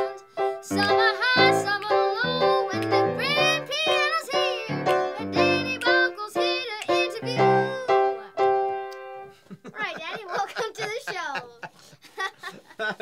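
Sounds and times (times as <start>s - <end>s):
girl singing a pop tune: 0.0s - 9.1s
piano accompaniment: 0.0s - 9.4s.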